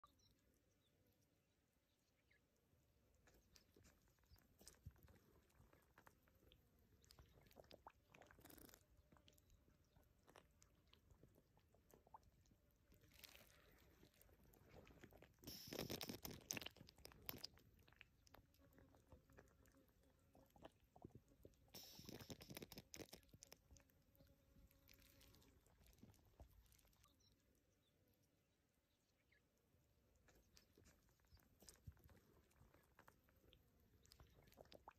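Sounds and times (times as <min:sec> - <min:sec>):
wet clicks and squelches of mud: 0:03.1 - 0:19.6, 0:20.5 - 0:24.0
wet splashing bursts: 0:15.4 - 0:17.4.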